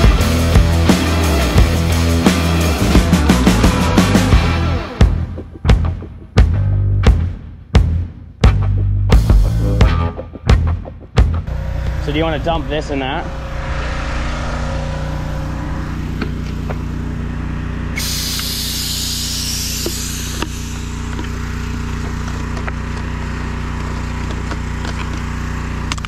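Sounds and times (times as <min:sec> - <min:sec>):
pressure washer engine running: 0:11.5 - 0:26.0
air hissing out: 0:18.0 - 0:21.8.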